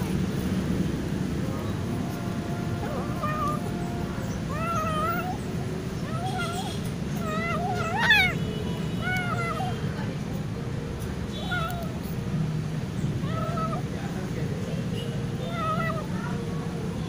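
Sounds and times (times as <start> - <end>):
low background noise: 0.0 - 17.0
kitten mewing: 2.6 - 8.4, 9.0 - 9.9, 11.4 - 12.2, 13.2 - 13.9, 15.4 - 16.4.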